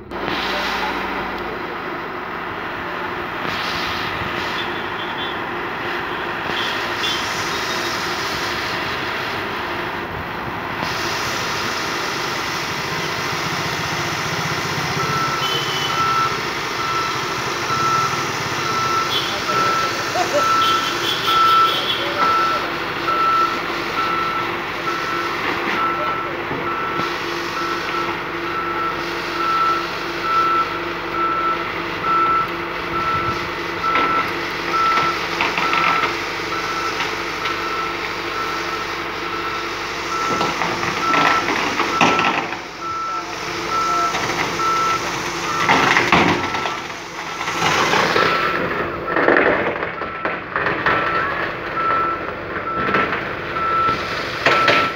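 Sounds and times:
diesel engine running: 0.0s - 54.9s
loud rough noise: 0.0s - 54.9s
reverse alarm beeping: 14.6s - 54.9s.

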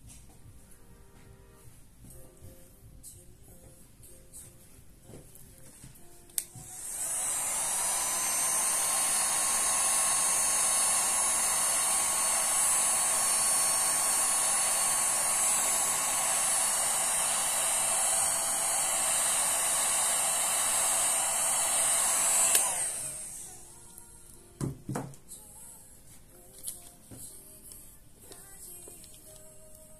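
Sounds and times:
heat gun fan whining: 6.4s - 24.0s.

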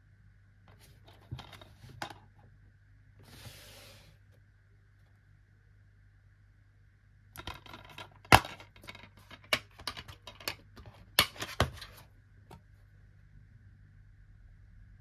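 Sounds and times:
plastic case clicks and rattles: 7.4s - 11.9s.

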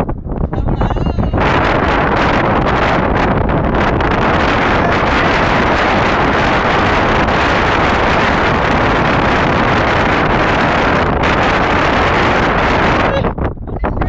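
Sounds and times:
strong wind on microphone: 0.0s - 14.0s.

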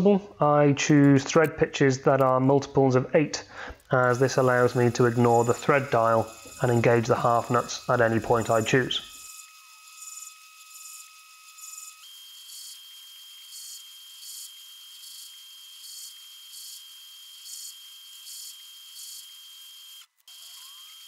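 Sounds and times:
thin steady whine: 4.0s - 10.3s.

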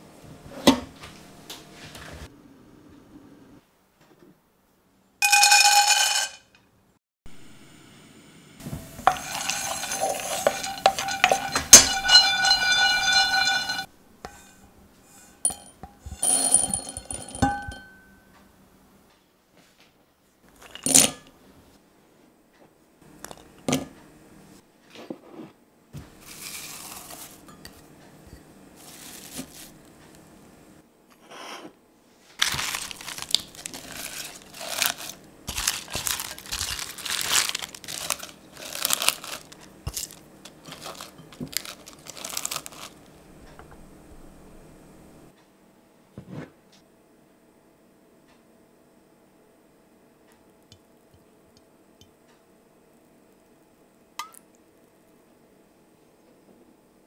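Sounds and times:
nuts clinking into glass jug: 5.2s - 6.5s, 9.0s - 13.9s, 15.5s - 17.9s, 32.4s - 43.1s
wooden spoon scraping a pan: 8.6s - 16.3s, 24.9s - 29.9s, 32.4s - 43.0s
leaves rustling and crunching: 26.2s - 27.5s, 28.8s - 29.8s, 32.4s - 43.1s.

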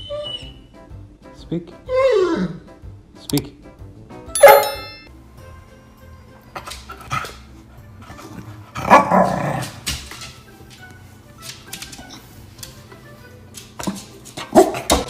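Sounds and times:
dog barking: 14.4s - 15.0s.

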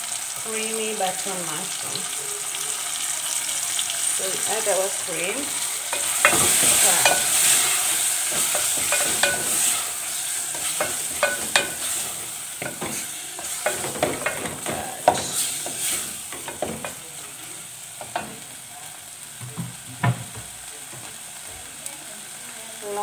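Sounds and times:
food sizzling: 0.0s - 23.0s
wooden spatula scraping a pot: 5.2s - 17.0s.

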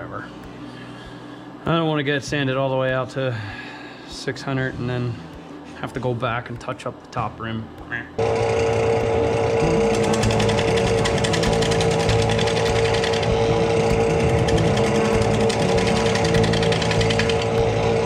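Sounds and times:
turning tool chattering: 8.2s - 18.0s
wood lathe humming: 8.2s - 18.0s.

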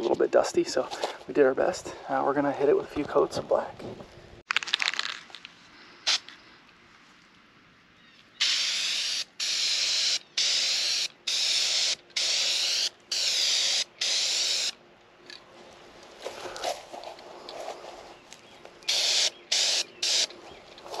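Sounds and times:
spray paint can hissing: 8.4s - 14.8s, 18.9s - 20.3s.

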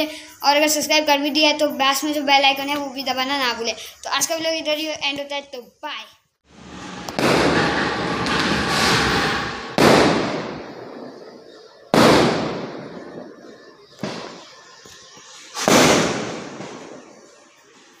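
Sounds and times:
firecrackers banging: 6.5s - 18.0s.

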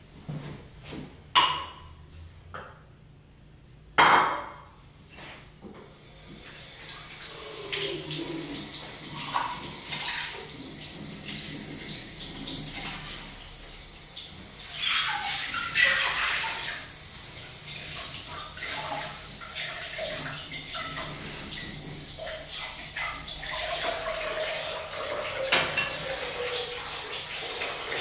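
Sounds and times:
kitchen tap running: 6.0s - 28.0s.

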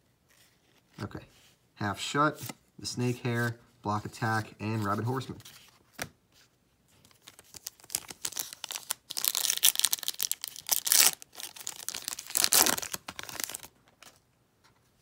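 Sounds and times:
foil wrapper crinkling and tearing: 7.2s - 14.1s.

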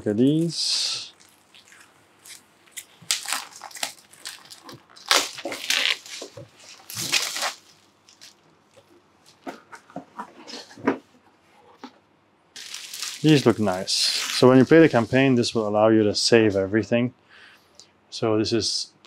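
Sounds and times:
cardboard and wrapping crinkling: 0.2s - 10.8s, 12.6s - 15.4s.

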